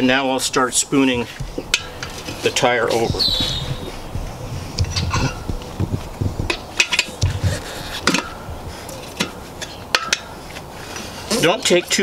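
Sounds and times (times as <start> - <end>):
tire irons clinking on metal rim: 0.1 - 12.0
dull knocks: 3.0 - 8.3.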